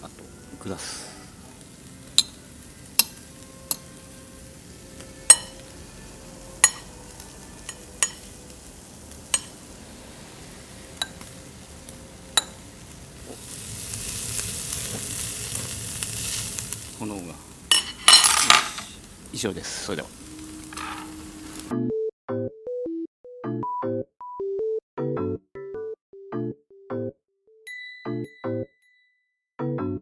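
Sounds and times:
meat sizzling on a grill: 0.0 - 21.7
fat popping on a grill: 2.0 - 3.9, 5.3 - 5.7, 6.6 - 6.9, 7.6 - 8.4, 13.2 - 16.8, 17.7 - 19.1, 20.6 - 21.2.

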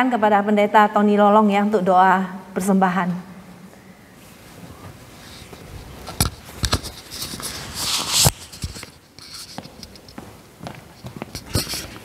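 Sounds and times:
rustling and shuffling: 4.1 - 12.0
footsteps on a hard floor: 4.6 - 12.0.

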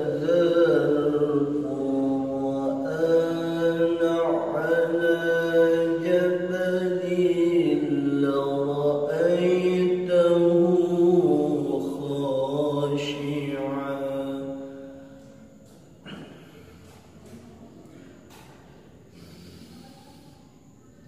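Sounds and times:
man reciting melodically: 0.0 - 14.8.

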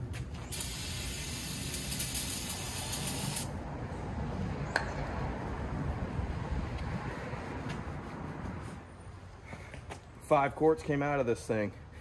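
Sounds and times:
aerosol can spraying: 0.5 - 3.5.

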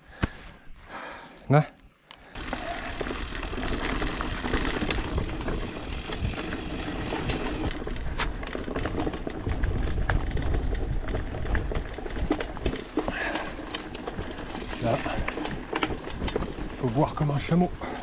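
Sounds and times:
bike tyres crunching on dirt: 2.0 - 18.0
bike rattling over bumps: 2.3 - 18.0
wind buffeting microphone: 4.7 - 12.5.

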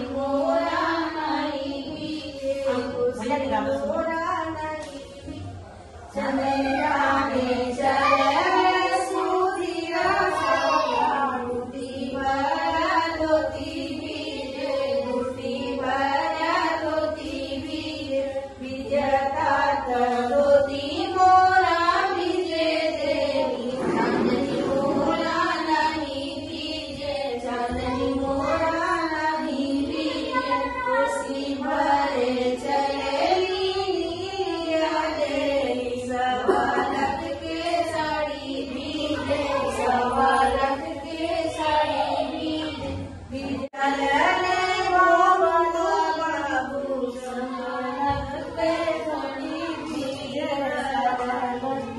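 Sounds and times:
women singing in unison: 0.0 - 51.9.

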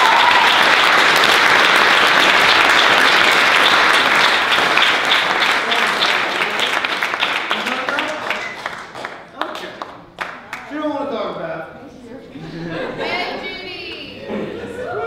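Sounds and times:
person whooping: 0.0 - 0.6
crowd applauding: 0.0 - 10.8.

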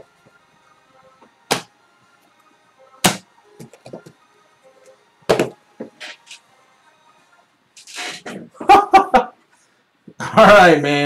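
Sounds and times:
faint background music: 0.0 - 11.0
card boxes knocking on table: 5.3 - 6.0.

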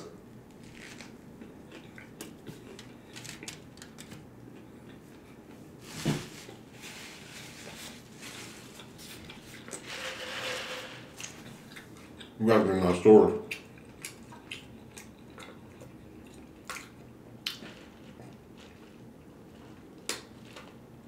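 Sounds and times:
chewing food: 0.7 - 5.6, 11.2 - 12.4, 13.4 - 20.8
rustling: 5.8 - 11.1.

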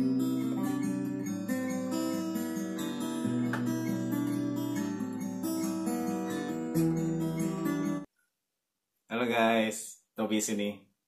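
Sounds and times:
acoustic guitar chords: 0.0 - 8.1.

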